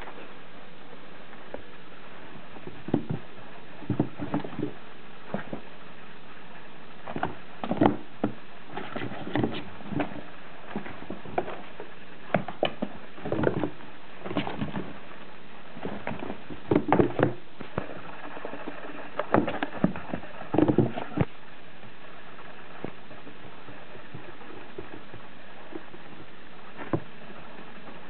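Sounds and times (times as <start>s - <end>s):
kittens scampering on cardboard: 2.6s - 5.8s, 7.0s - 21.3s.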